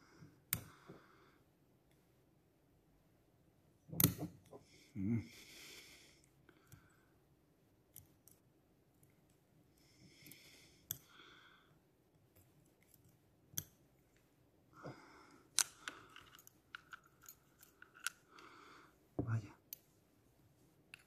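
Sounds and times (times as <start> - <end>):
small metallic clicks: 15.5 - 18.5.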